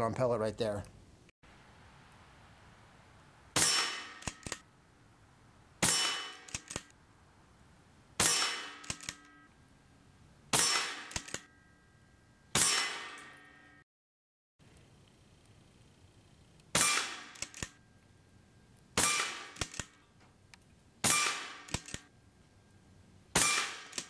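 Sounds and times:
air rifle shots: 0:03.6 - 0:04.6, 0:05.8 - 0:06.9, 0:08.2 - 0:09.2, 0:10.5 - 0:11.5, 0:12.6 - 0:13.4, 0:16.7 - 0:17.7, 0:19.0 - 0:20.0, 0:21.0 - 0:22.1, 0:23.3 - 0:24.0.

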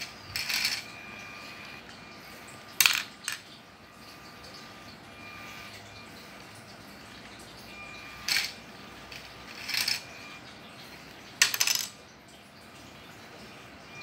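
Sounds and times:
plastic parts clattering: 0:00.0 - 0:01.2, 0:02.7 - 0:03.6, 0:08.2 - 0:10.4, 0:11.4 - 0:12.0.

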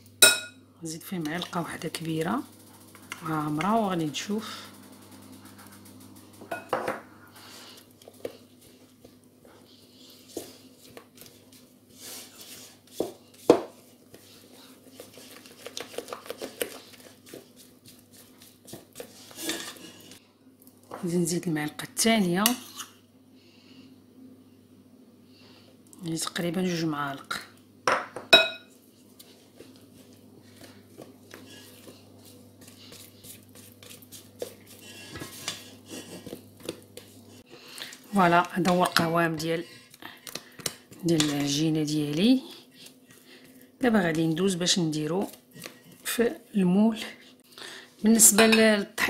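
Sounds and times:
spatula stirring batter in bowl: 0:01.0 - 0:06.5, 0:07.5 - 0:20.2, 0:28.7 - 0:47.2
spatula scraping metal bowl: 0:15.0 - 0:20.2, 0:31.3 - 0:37.1.

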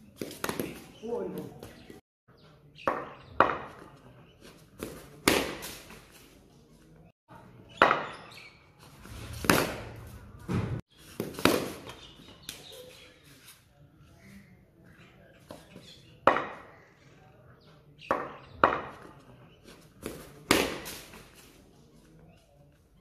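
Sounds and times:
cricket bat striking ball: 0:04.8 - 0:05.8, 0:07.8 - 0:08.2, 0:18.1 - 0:19.1, 0:20.1 - 0:21.1.

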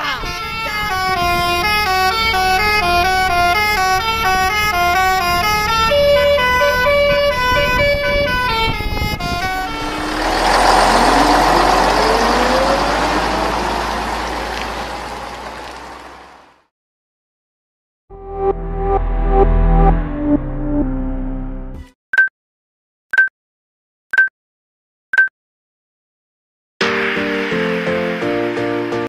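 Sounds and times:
multi-tone bus horn tune: 0:00.0 - 0:16.3
loud rushing noise rising tone: 0:09.3 - 0:15.8, 0:26.8 - 0:28.9.

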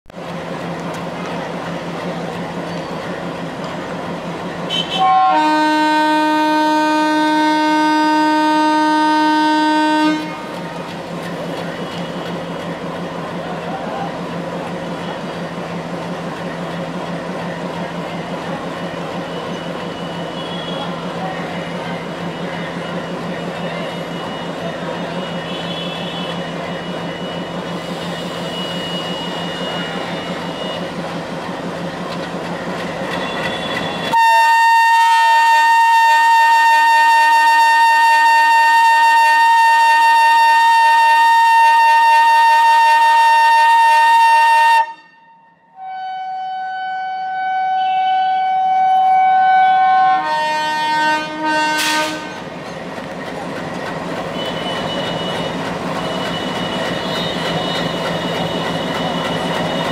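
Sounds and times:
diesel locomotive engine idling: 0:00.1 - 0:37.1, 0:49.1 - 0:59.9
locomotive horn: 0:04.7 - 0:10.8, 0:19.9 - 0:21.1, 0:23.6 - 0:31.0, 0:33.2 - 0:52.5, 0:54.3 - 0:59.9.

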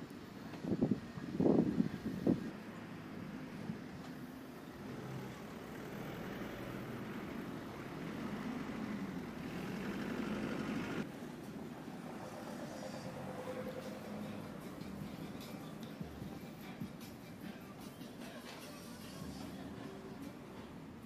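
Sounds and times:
car engines passing: 0:01.2 - 0:16.3.

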